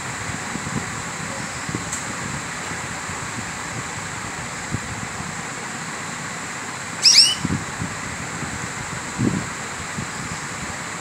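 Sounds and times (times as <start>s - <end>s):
canary chirping: 7.0s - 7.5s.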